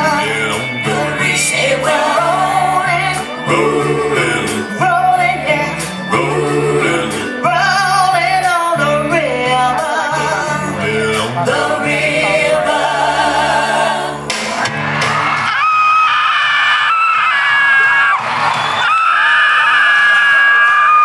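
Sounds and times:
song over sound system: 0.0 - 15.4.

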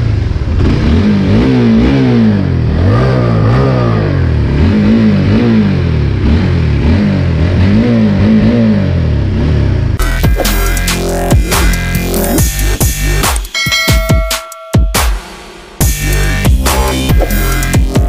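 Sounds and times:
motorcycle engine revving: 0.0 - 13.4.

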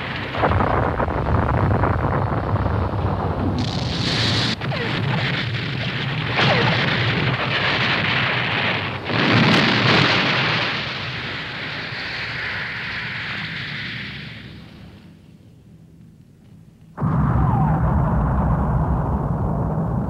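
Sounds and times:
explosion blasts: 0.0 - 12.0, 17.0 - 20.0
rumbling blasts and fire: 0.0 - 20.0.

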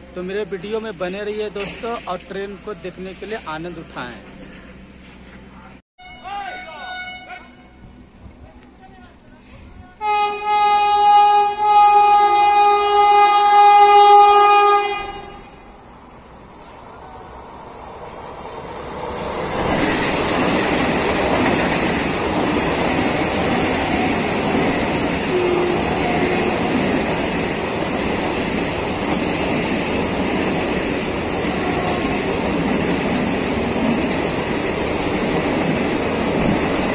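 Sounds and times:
train passing at high speed: 7.5 - 36.9.

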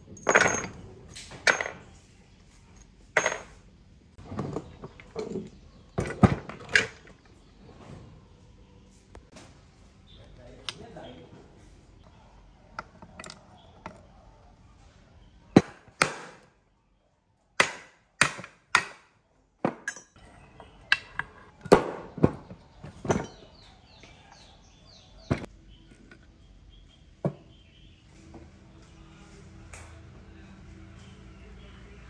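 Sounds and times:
metallic knocks of engine parts: 0.0 - 1.9, 3.2 - 3.6, 19.7 - 24.1.

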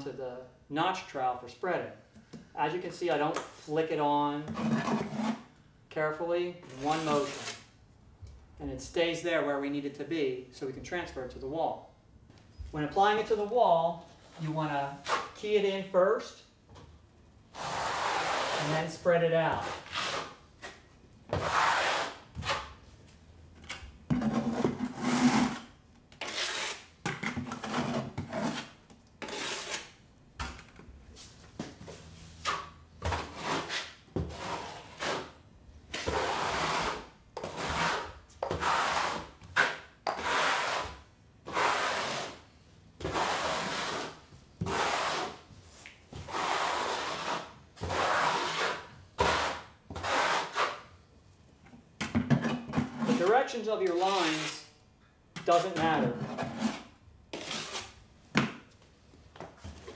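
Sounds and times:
trowel scraping mortar: 4.5 - 5.5, 6.7 - 7.7, 17.5 - 22.8, 24.2 - 26.9, 27.5 - 30.0, 32.4 - 42.4, 43.0 - 45.4, 46.2 - 50.9, 53.0 - 54.7, 55.4 - 58.0.

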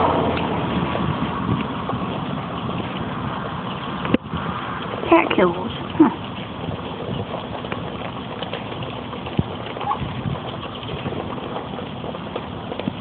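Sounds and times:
duck bills clicking and crunching: 0.0 - 13.0.

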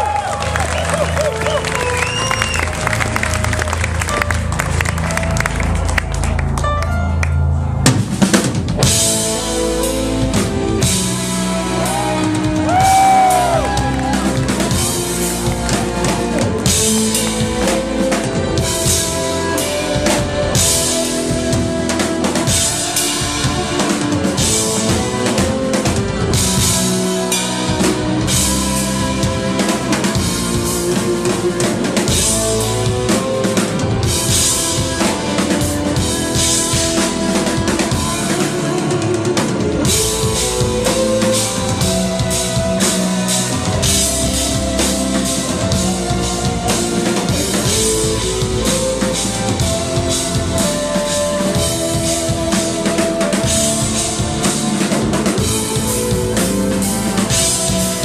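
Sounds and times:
drum kit: 0.0 - 58.0.

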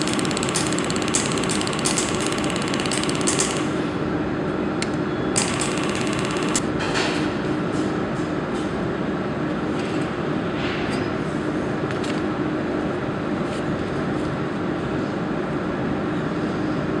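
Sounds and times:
machinery humming: 0.0 - 4.4, 5.4 - 6.8.

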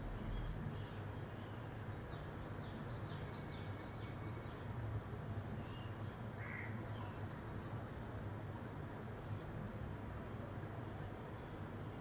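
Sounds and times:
steady low hum: 0.0 - 2.4
faint bird chirps: 0.0 - 4.6.

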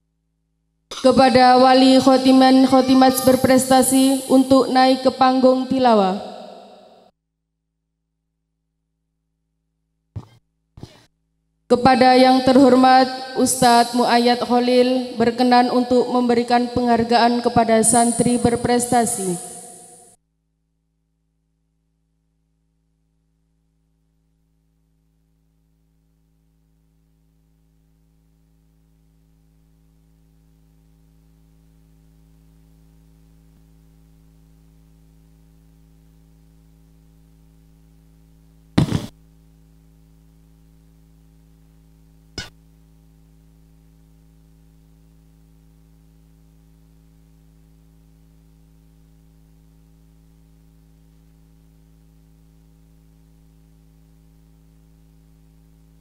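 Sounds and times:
electrical mains hum: 0.9 - 7.0, 11.7 - 20.2, 24.0 - 56.0
sharp knocks: 10.2 - 11.1, 38.8 - 39.1.

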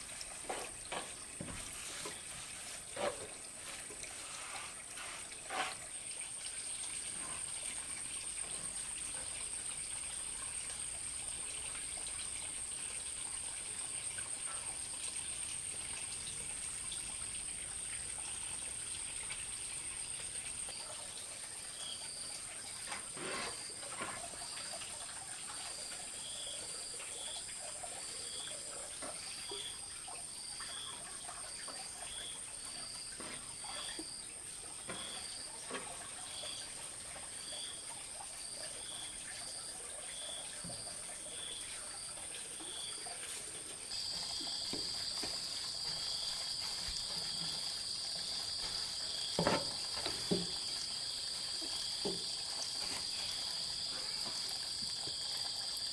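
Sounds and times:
insect chirping: 16.6 - 55.9
insects buzzing: 38.4 - 55.9.

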